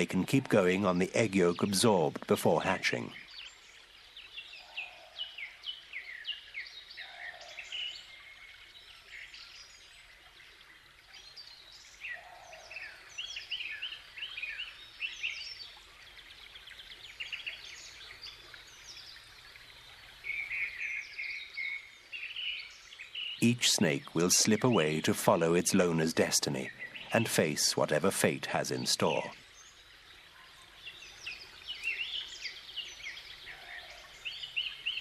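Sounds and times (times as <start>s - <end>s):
soft low bird calls: 0.0s - 35.0s
wild birds chirping: 0.0s - 35.0s.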